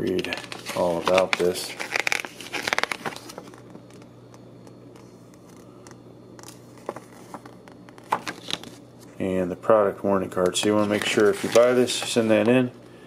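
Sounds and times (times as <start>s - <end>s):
paper pages rustling: 0.0s - 4.1s, 6.4s - 9.2s, 10.4s - 12.6s
low steady hum: 0.0s - 13.0s.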